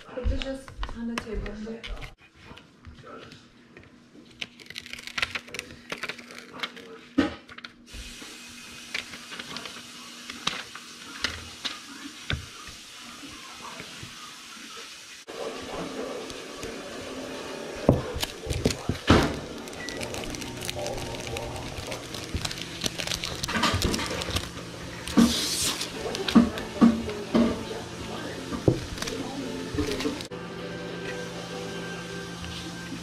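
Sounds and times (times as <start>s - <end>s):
plastic film crackling: 4.2s - 12.7s, 17.8s - 30.3s.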